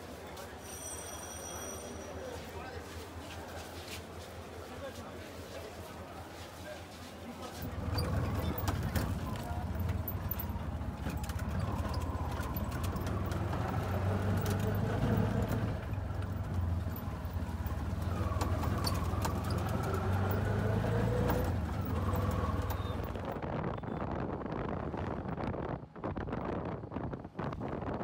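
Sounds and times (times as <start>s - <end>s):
auto-rickshaw engine running: 7.4s - 26.0s.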